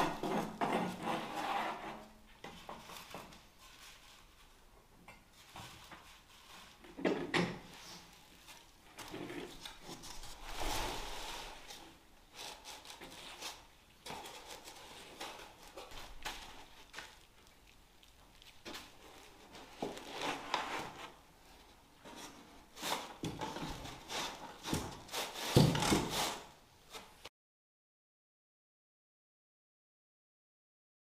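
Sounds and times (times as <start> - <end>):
foam boards rubbing and scraping: 0.0 - 2.1, 9.1 - 15.9, 22.0 - 27.1.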